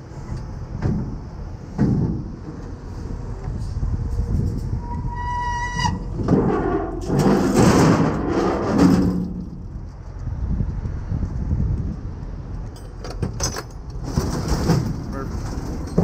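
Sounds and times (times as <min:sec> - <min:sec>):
tow truck bed lowering: 0:00.0 - 0:09.9, 0:12.7 - 0:16.0
truck engine rumbling: 0:00.0 - 0:16.0
hydraulic squeal: 0:04.4 - 0:07.0.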